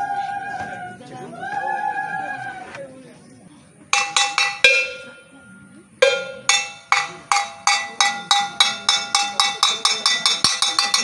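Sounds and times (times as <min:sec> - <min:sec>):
metal bell struck repeatedly: 0:04.0 - 0:11.0.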